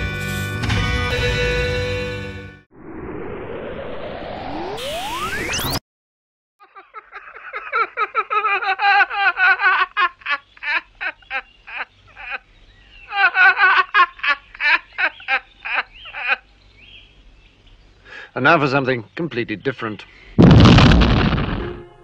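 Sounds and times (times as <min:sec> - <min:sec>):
music with rising sweep: 0:00.2 - 0:05.8
young man laughing wildly: 0:06.6 - 0:16.5.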